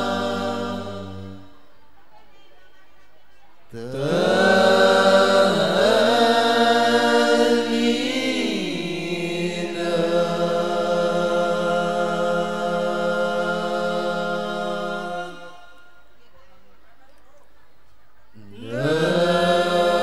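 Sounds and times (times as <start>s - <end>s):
male vocal group chanting: 0.0s - 1.8s, 3.7s - 16.1s, 18.4s - 20.0s.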